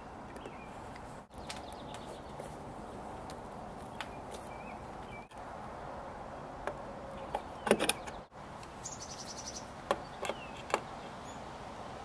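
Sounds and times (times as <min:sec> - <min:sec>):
background hiss: 0:08.3 - 0:12.0.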